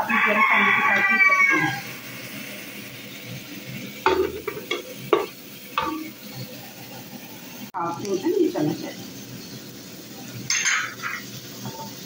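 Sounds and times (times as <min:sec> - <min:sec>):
rooster crowing: 0:00.0 - 0:02.1
onions sizzling in oil: 0:00.0 - 0:12.0.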